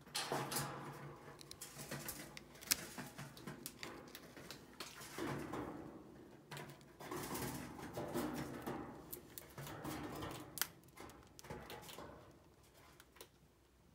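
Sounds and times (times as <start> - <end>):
rustling: 0.4 - 5.7
chinchilla crunching grain: 0.9 - 5.4.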